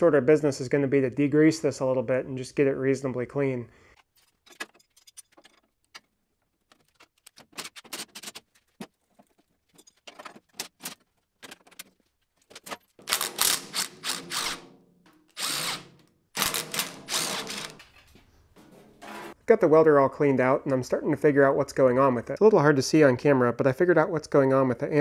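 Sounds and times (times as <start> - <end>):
impact driver bursts: 13.0 - 14.7, 15.3 - 17.8.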